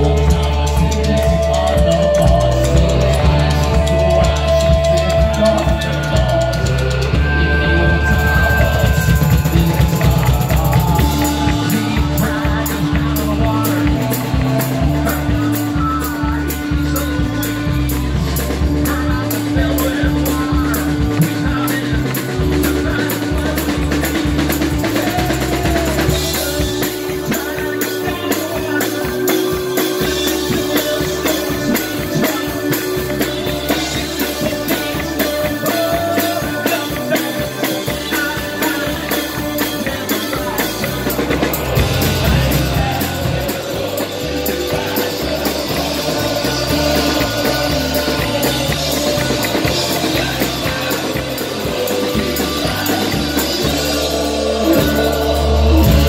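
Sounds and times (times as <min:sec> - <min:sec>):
live band playing loudly: 0:00.0 - 0:56.0
person singing: 0:00.0 - 0:56.0.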